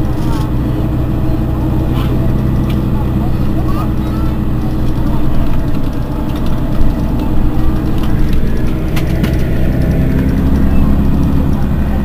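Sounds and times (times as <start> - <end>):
bus engine idling: 0.0 - 12.0.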